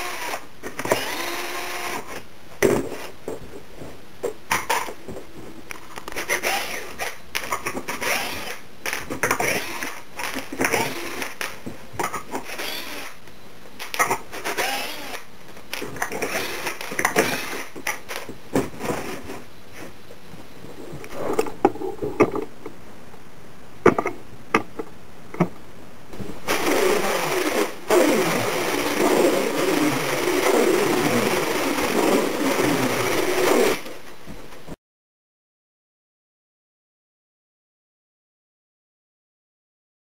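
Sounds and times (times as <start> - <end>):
cordless drill driving screws: 0.0 - 2.2, 6.2 - 7.1, 7.9 - 11.4, 12.4 - 13.2, 14.4 - 17.7, 26.5 - 33.9
loud steady noise: 26.2 - 33.9.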